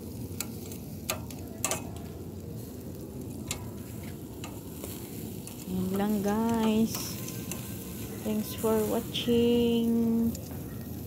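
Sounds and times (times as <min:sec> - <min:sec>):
meat sizzling on grill: 0:00.0 - 0:11.0
metal tongs clicking: 0:00.4 - 0:02.0.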